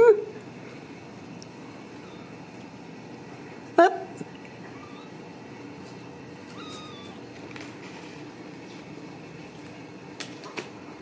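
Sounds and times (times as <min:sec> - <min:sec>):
kitten mewing: 0:02.0 - 0:02.4, 0:03.9 - 0:05.2, 0:06.5 - 0:07.4.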